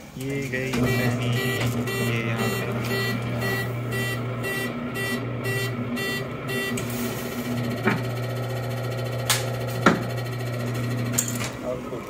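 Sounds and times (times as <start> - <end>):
electric motor hum: 0.6 - 12.0
machine beeps: 0.8 - 9.2
sharp machine clack: 0.8 - 10.5.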